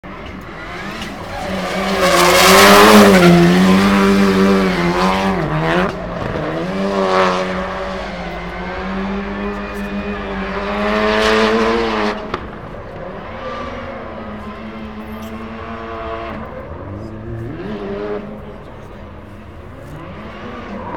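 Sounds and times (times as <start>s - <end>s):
car engine at high revs: 0.0s - 20.9s
tyres squealing on asphalt: 0.1s - 11.0s.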